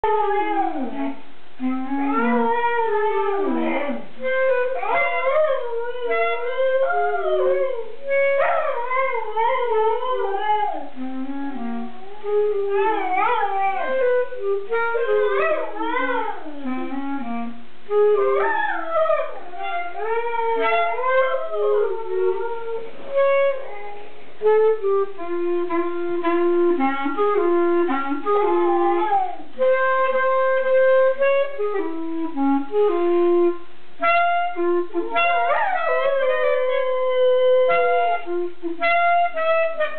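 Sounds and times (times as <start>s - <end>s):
dog howling: 0.0s - 1.2s, 1.9s - 11.0s, 11.8s - 16.7s, 18.2s - 24.2s, 28.5s - 29.6s, 35.4s - 37.8s
clarinet playing held notes: 0.0s - 39.9s.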